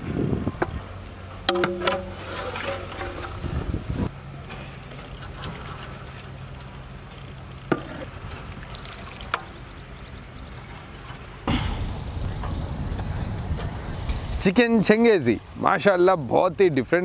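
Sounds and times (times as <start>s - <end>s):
steady low hum: 0.0s - 16.3s
loud rushing background noise: 11.4s - 15.8s.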